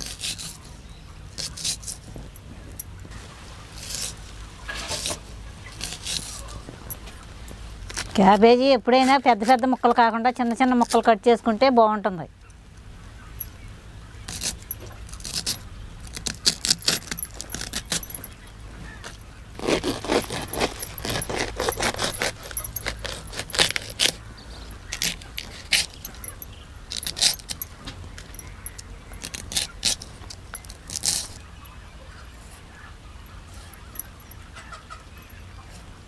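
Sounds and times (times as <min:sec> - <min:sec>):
cabbage being sliced crunchily: 0:03.8 - 0:06.9, 0:19.0 - 0:24.2.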